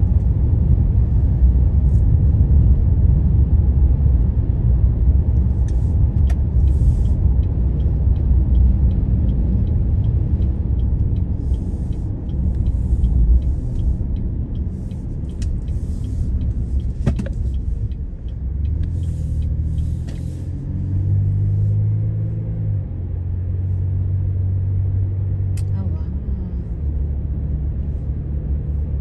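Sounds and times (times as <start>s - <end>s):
engine and tyre rumble: 0.0s - 29.0s
steady engine hum: 0.0s - 29.0s
turn signal ticking: 0.0s - 29.0s
tyre hiss on wet road: 19.0s - 20.6s.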